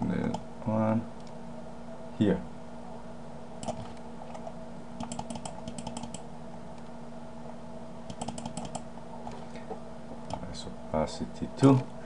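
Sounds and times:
steady low hum: 0:00.0 - 0:12.0
computer keyboard keystrokes: 0:03.6 - 0:03.9, 0:05.0 - 0:06.2, 0:08.1 - 0:08.8.

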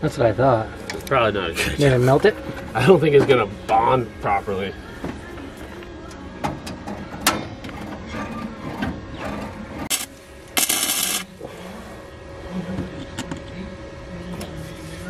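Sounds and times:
arc welder crackling and hissing: 0:09.9 - 0:11.4.

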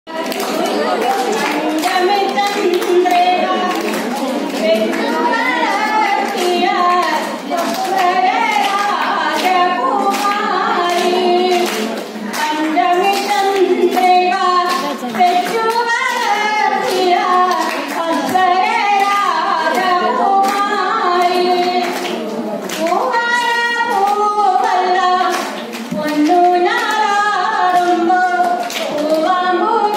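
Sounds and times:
person singing: 0:00.1 - 0:23.1
rhythmic hand-clapping: 0:00.1 - 0:29.9.

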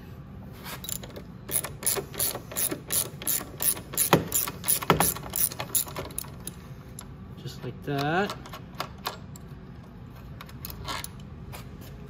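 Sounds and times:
ratchet clicking: 0:00.9 - 0:06.6.

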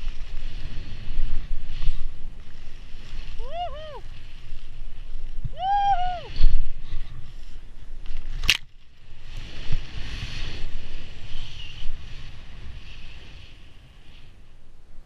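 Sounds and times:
wind rumble on microphone: 0:00.0 - 0:15.0
person whooping: 0:03.4 - 0:04.1, 0:05.5 - 0:06.4.

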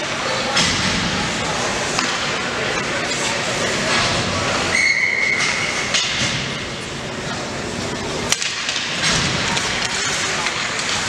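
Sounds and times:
crowd chatter: 0:00.0 - 0:11.0
referee whistle blast: 0:04.7 - 0:05.5.

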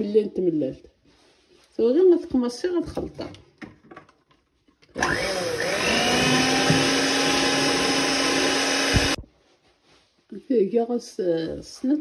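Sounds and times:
electric hand mixer whining: 0:05.0 - 0:09.2.

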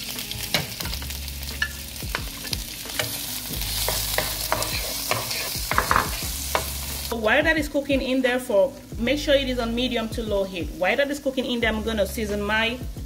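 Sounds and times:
food sizzling in oil: 0:00.0 - 0:13.0
wooden spoon scraping pan: 0:03.8 - 0:06.2.

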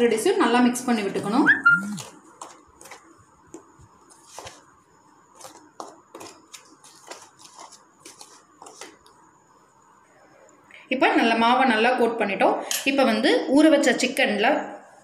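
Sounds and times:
spoon scraping plastic bowl: 0:05.3 - 0:09.1.

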